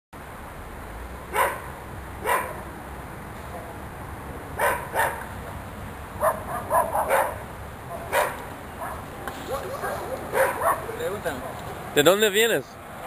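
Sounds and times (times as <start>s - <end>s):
dog barking: 1.3s - 2.6s, 4.6s - 5.3s, 6.2s - 11.0s.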